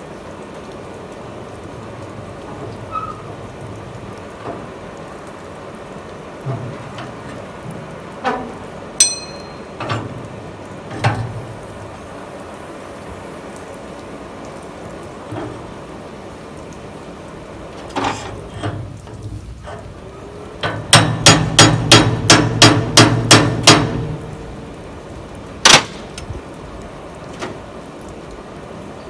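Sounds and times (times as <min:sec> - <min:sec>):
hammer ringing on metal: 0:09.0 - 0:09.8, 0:20.9 - 0:23.9.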